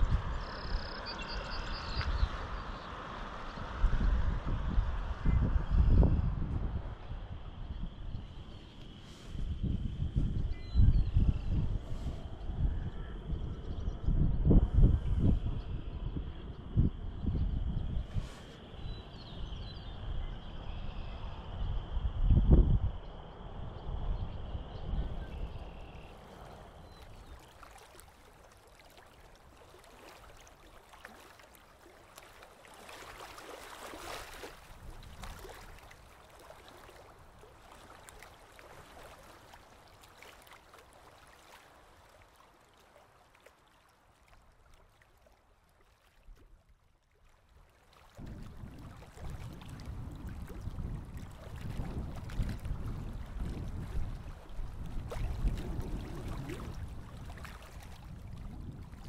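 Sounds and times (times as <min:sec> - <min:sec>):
wind buffeting microphone: 0:00.0 - 0:27.5, 0:33.1 - 0:38.2, 0:48.2 - 0:59.0
creek water over pebbles: 0:25.0 - 0:59.0.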